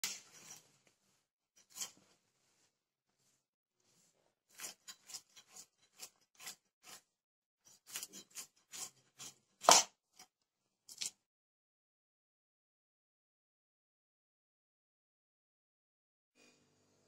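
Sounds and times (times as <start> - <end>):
fish being cut on a blade: 4.5 - 10.3.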